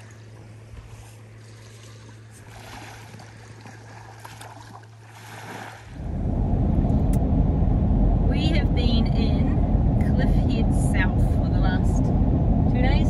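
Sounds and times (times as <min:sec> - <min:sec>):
small waves lapping on beach: 0:00.0 - 0:06.0
steady low hum: 0:00.0 - 0:13.0
car road noise rumble: 0:05.9 - 0:13.0.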